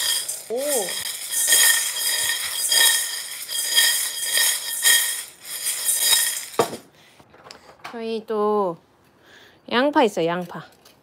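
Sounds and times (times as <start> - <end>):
plastic pieces rattling in saucepan: 0.0 - 6.8.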